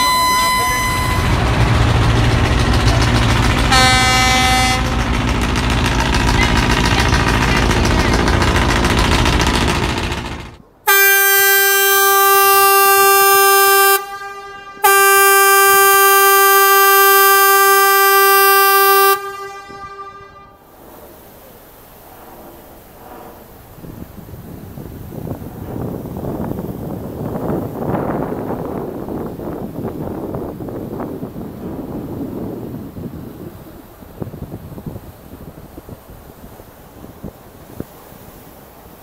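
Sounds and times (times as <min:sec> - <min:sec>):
higher horn toot: 0:00.0 - 0:08.5, 0:10.9 - 0:20.6
boat horn long blasts: 0:00.0 - 0:20.8
boat engine rumble and hiss: 0:00.0 - 0:39.0
wind on microphone: 0:22.0 - 0:38.5.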